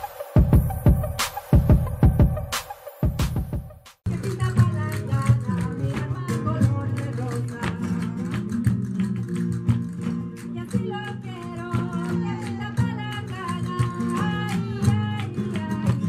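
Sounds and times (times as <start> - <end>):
sharp percussive beats: 0.0 - 4.7
person singing: 4.1 - 8.2
guitar: 4.1 - 16.0.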